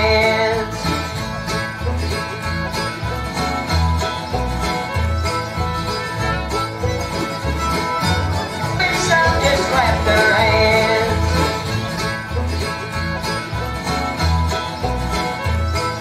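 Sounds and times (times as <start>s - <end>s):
bluegrass string band music: 0.0s - 16.0s.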